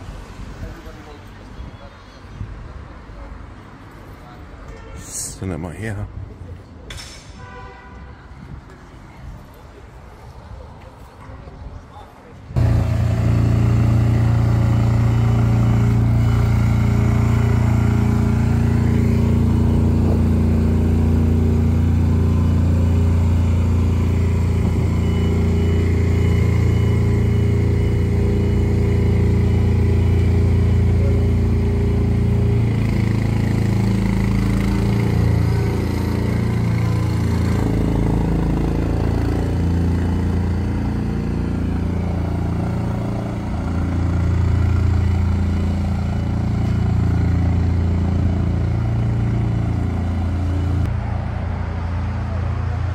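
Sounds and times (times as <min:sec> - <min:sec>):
engine droning: 0:12.5 - 0:52.9.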